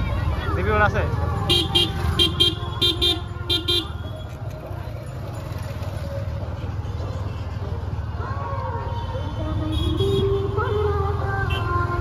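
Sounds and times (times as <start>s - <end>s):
low rumble of engines: 0.0s - 12.0s
motorcycle horn beeping: 1.5s - 4.2s.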